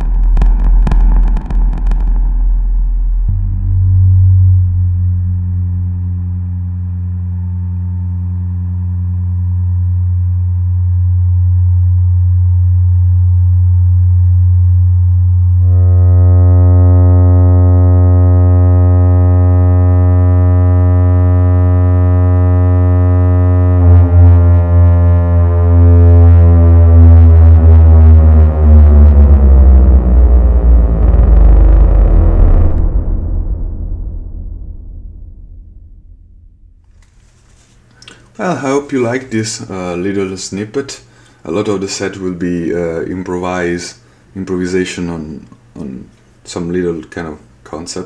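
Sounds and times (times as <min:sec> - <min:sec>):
fast throbbing pulse: 0:00.0 - 0:11.6, 0:15.6 - 0:37.2
deep buzzy electronic drone: 0:00.0 - 0:40.7.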